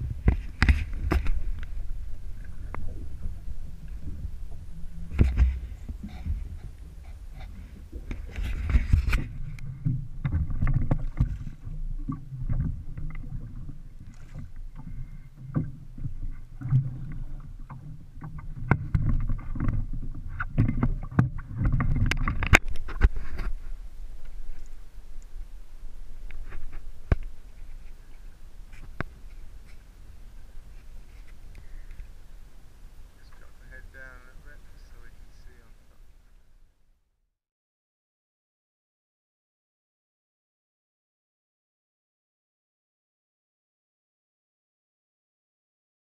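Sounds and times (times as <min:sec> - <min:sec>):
knocks and clatter on boat: 0:00.0 - 0:01.8, 0:02.4 - 0:23.7
low rumble: 0:00.0 - 0:22.9
water slapping boat hull: 0:00.0 - 0:36.4.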